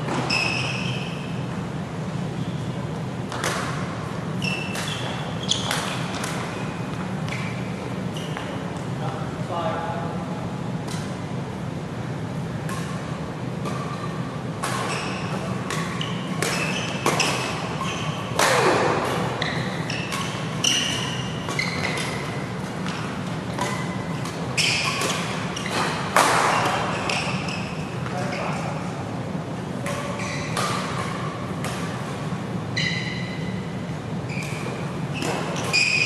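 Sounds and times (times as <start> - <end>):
shoes squeaking on court: 0.0 - 1.6, 2.2 - 8.9, 13.7 - 28.8, 29.8 - 36.0
steady low hum: 1.0 - 35.6
rackets hitting shuttlecock: 3.2 - 7.7, 12.5 - 28.2, 29.8 - 33.4, 34.4 - 36.0.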